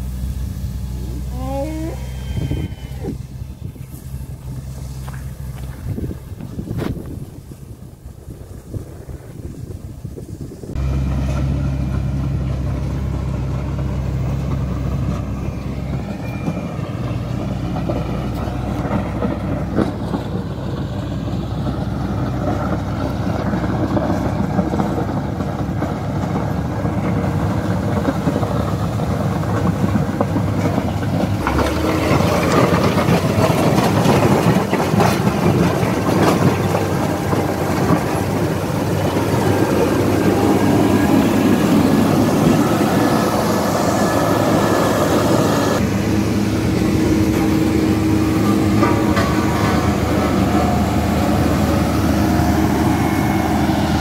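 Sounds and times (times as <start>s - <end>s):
diesel engine running: 0.0s - 54.0s
blade scraping gravel: 3.1s - 7.6s.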